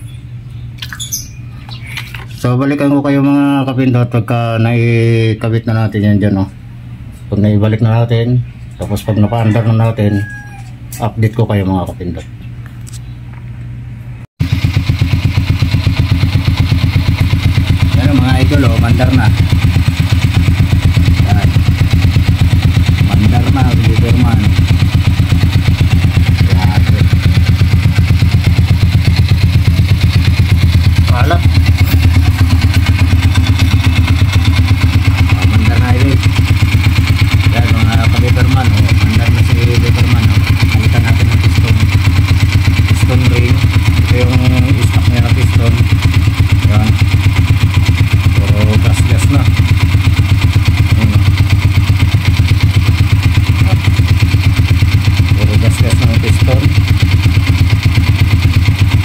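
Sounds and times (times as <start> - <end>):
motorcycle engine idling: 14.4 - 59.0.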